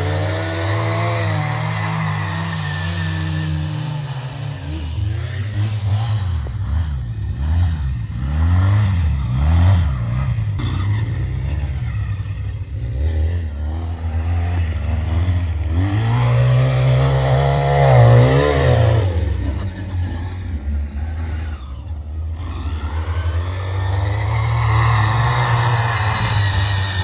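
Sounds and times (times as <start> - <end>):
atv engines revving: 0.0 - 27.0.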